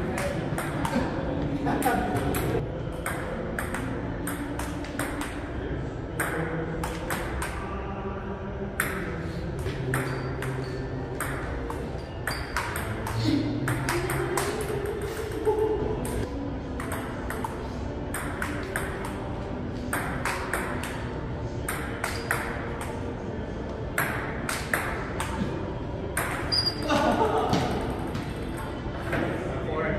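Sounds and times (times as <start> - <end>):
table tennis ball hits: 2.1 - 5.5, 8.8 - 15.4, 16.8 - 23.0, 24.0 - 25.4, 26.2 - 26.8.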